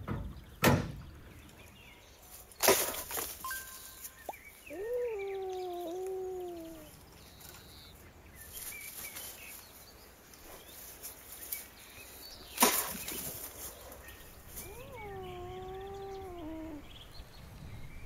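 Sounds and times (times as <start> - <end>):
cat yowling: 4.7 - 7.0, 14.5 - 16.9.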